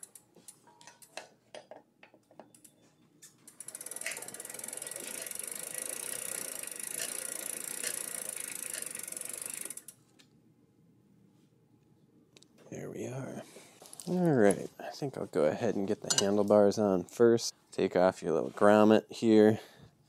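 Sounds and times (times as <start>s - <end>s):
bicycle freewheel ratcheting: 0.0s - 1.2s, 3.4s - 10.0s.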